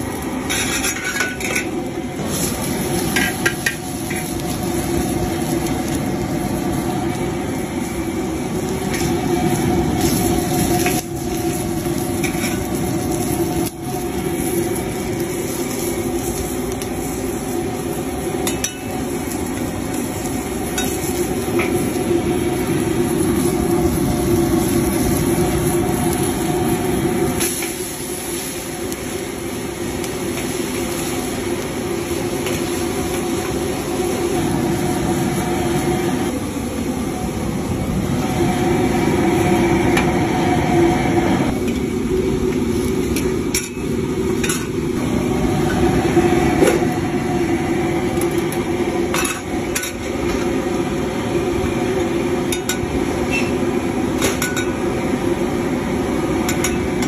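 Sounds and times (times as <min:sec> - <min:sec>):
gas burner roaring: 0:00.0 - 0:57.0
stock boiling rapidly: 0:00.0 - 0:57.0
metal ladle scraping wok: 0:00.4 - 0:04.4, 0:09.9 - 0:13.3.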